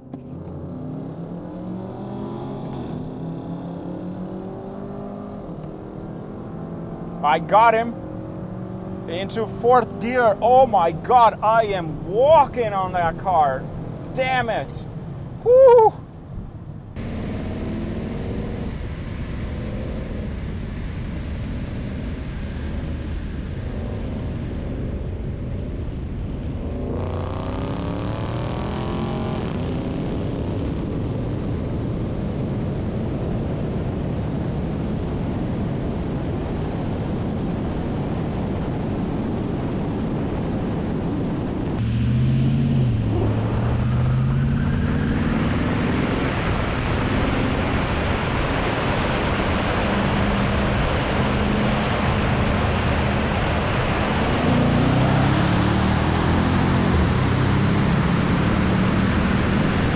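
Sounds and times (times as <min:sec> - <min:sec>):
car engine accelerating: 0:00.0 - 0:33.2, 0:41.4 - 0:59.9
heavy wind noise: 0:29.5 - 0:59.9.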